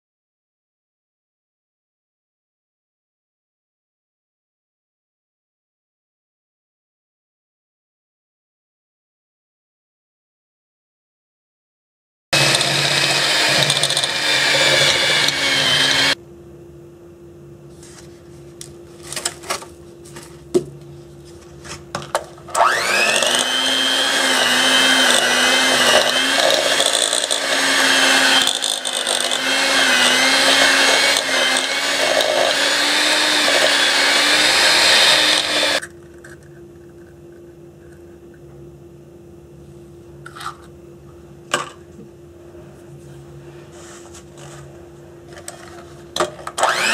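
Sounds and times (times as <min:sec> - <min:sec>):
electric hand mixer whirring: 0:12.4 - 0:16.2, 0:22.5 - 0:35.9, 0:46.5 - 0:46.9.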